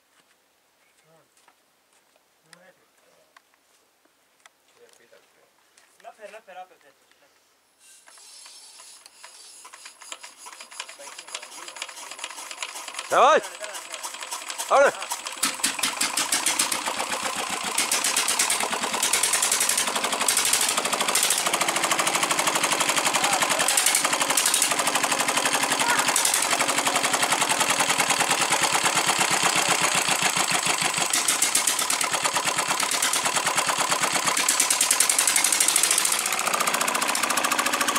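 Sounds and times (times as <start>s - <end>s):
diesel engine knocking: 13.7s - 37.9s.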